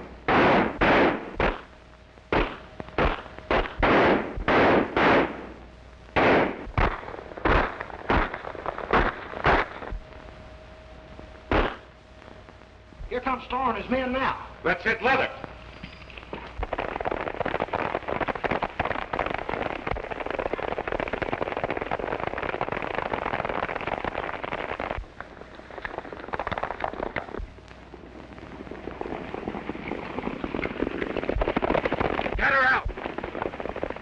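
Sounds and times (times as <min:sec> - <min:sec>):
gunshots: 0:00.2 - 0:01.7, 0:02.3 - 0:05.6, 0:06.2 - 0:10.0, 0:11.5 - 0:11.9
horses galloping hoofbeats: 0:15.7 - 0:27.5, 0:28.7 - 0:34.0.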